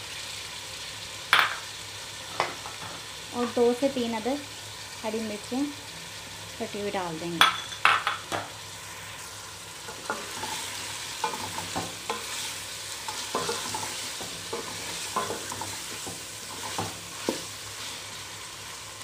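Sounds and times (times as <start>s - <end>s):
food sizzling in a metal pot: 0.0s - 19.0s
spatula scraping against pot: 9.9s - 17.5s.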